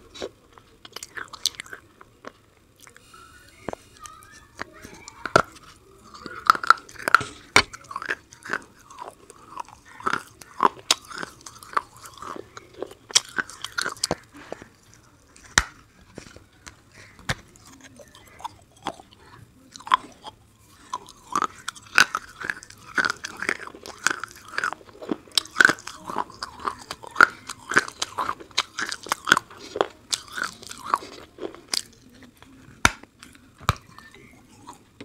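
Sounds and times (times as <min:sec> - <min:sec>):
wet chewing: 0:00.0 - 0:34.9
crunching of hard bar: 0:19.7 - 0:31.9.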